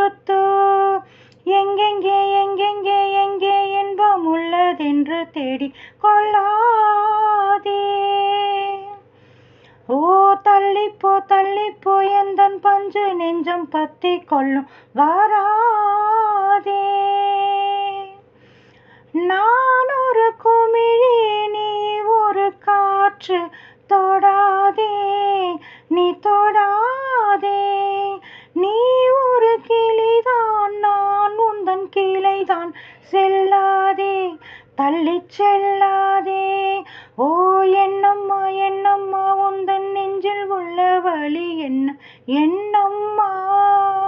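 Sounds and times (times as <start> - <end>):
woman singing unaccompanied: 0.0 - 9.2, 9.8 - 18.3, 19.0 - 44.0.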